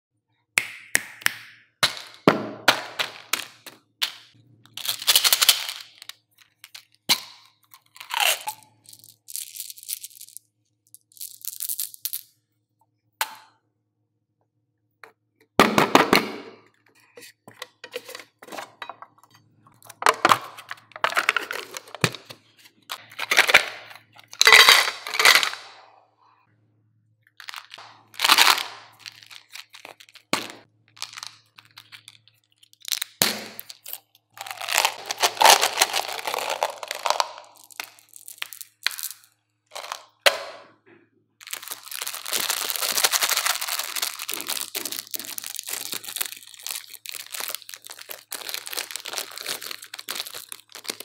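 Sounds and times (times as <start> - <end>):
wrapping crinkling and tearing: 4.8 - 7.0, 7.8 - 10.1, 27.4 - 39.2, 41.4 - 51.0
gum pellets tumbling out: 27.4 - 40.2, 41.4 - 51.0.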